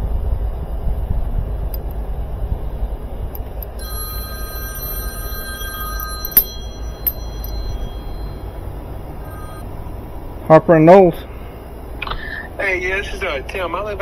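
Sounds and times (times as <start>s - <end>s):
low steady rumble: 0.0s - 10.4s
phone ringtone: 3.7s - 9.7s.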